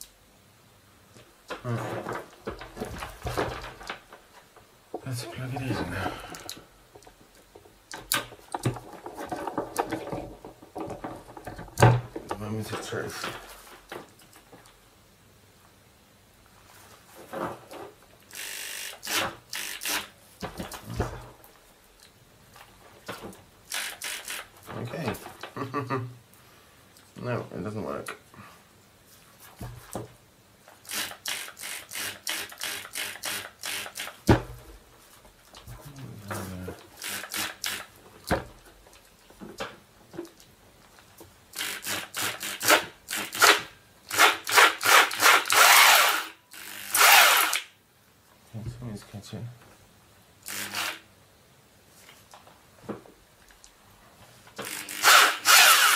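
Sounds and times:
drill trigger clicks: 0:18.3 - 0:20.1, 0:54.6 - 0:55.9
electric drill running: 0:18.3 - 0:20.1, 0:30.9 - 0:34.1, 0:41.6 - 0:47.6, 0:50.4 - 0:51.0, 0:54.6 - 0:55.9.

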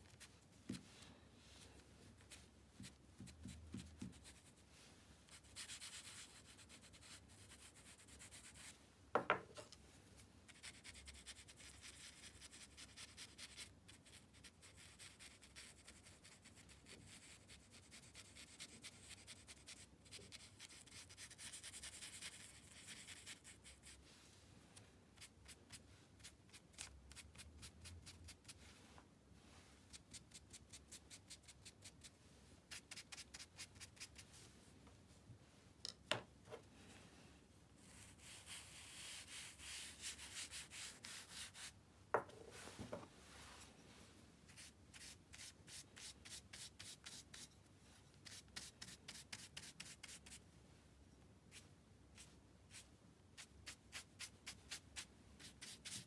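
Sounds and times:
charcoal scrubbing on paper: 0:05.3 - 0:08.7, 0:10.5 - 0:24.0, 0:37.8 - 0:41.7, 0:44.5 - 0:47.5, 0:48.2 - 0:50.4, 0:53.4 - 0:56.0.

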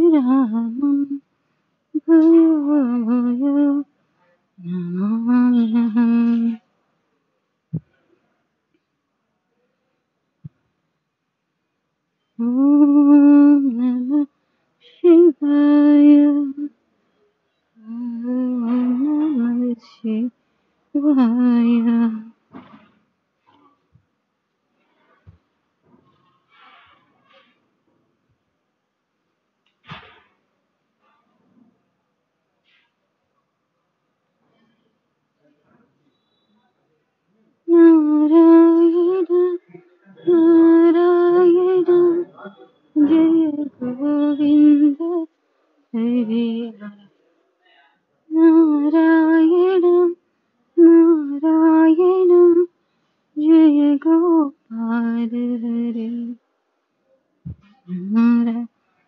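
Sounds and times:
woman chanting sung notes: 0:04.6 - 0:06.6, 0:17.8 - 0:20.3, 0:37.7 - 0:45.3, 0:46.0 - 0:47.1
person singing a hymn: 0:18.0 - 0:20.3, 0:43.0 - 0:45.3.

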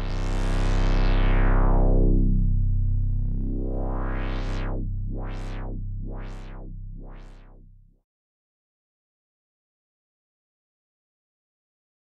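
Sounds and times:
synthesizer drone with filter sweep: 0:00.0 - 0:07.8.

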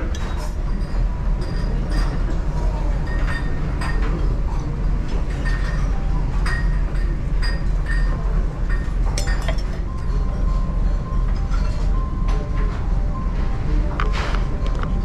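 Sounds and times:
crockery clinking: 0:05.3 - 0:10.3
metal ladle clinking on pot: 0:09.2 - 0:09.8.

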